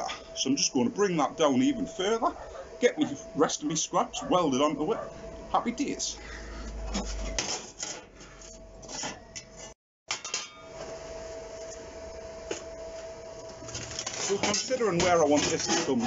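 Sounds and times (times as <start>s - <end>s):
sheet steel clanking and scraping: 6.8s - 10.6s, 13.8s - 16.0s.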